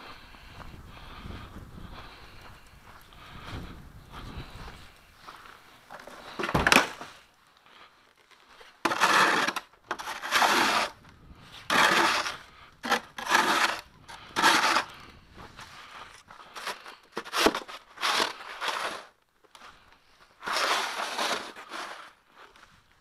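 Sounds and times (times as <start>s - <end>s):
snow shovel scraping pavement: 5.9s - 7.2s, 8.6s - 11.0s, 11.6s - 19.2s, 20.4s - 22.6s.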